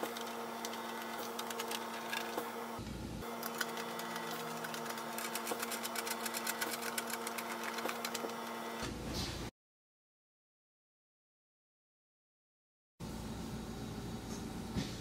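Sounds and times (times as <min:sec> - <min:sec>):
steady hum: 0:00.0 - 0:09.0.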